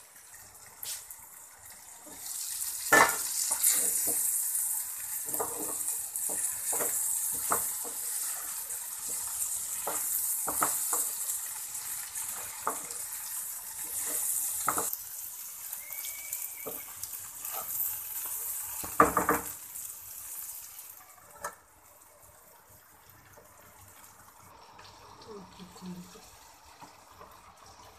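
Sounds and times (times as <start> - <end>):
okra sizzling in a frying pan: 0.0 - 27.9
spatula scraping a pan: 3.1 - 4.3, 17.4 - 19.0.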